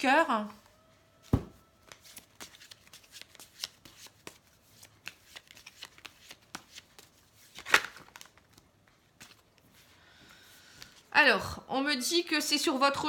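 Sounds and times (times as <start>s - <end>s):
card laid down: 1.2s - 1.6s
cards being shuffled: 1.2s - 9.9s.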